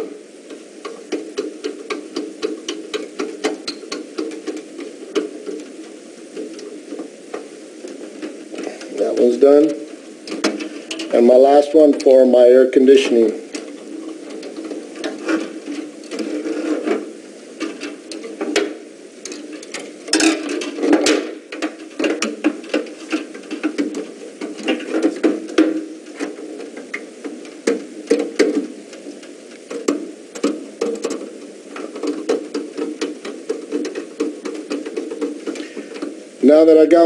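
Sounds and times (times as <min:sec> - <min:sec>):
rustling and scraping: 0:00.0 - 0:37.0
wire clicks and taps: 0:00.5 - 0:12.2, 0:13.5 - 0:36.2.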